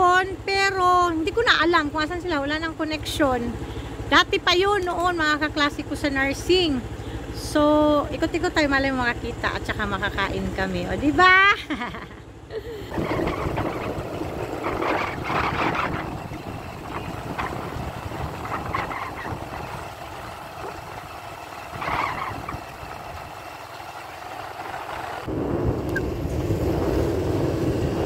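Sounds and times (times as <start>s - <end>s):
motorcycle engine running: 0.0s - 28.0s
wind noise on microphone: 12.9s - 21.1s, 21.7s - 23.3s, 24.5s - 28.0s.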